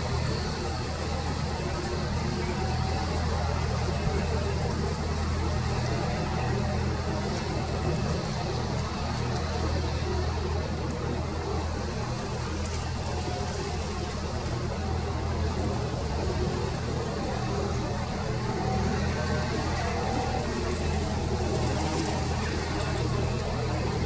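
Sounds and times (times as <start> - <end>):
airliner jet engines rumbling: 0.0 - 24.0.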